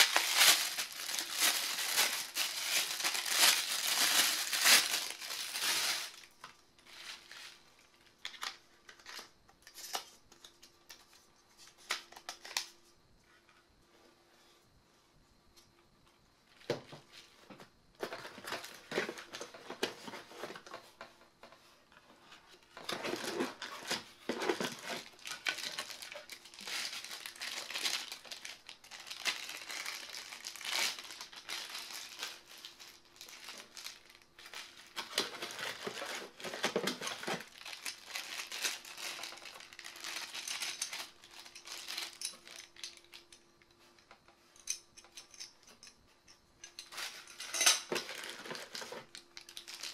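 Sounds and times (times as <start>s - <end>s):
plastic bag crinkling: 0.0s - 10.0s, 22.8s - 43.4s, 46.8s - 49.9s.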